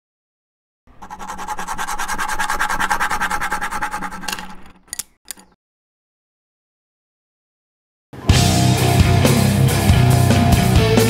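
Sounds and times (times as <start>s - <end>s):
fast even rattle: 1.0s - 5.6s.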